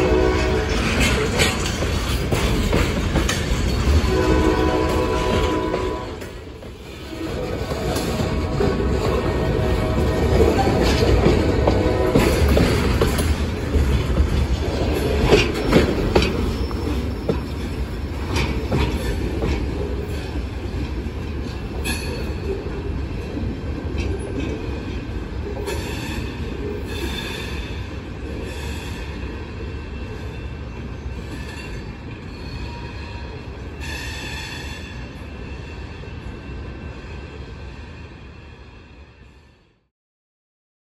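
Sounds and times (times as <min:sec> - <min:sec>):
wheels clacking over rail joints: 0:00.0 - 0:28.5
freight cars rolling on steel wheels: 0:00.1 - 0:05.8
train wheels squealing: 0:15.4 - 0:19.2, 0:29.9 - 0:38.4.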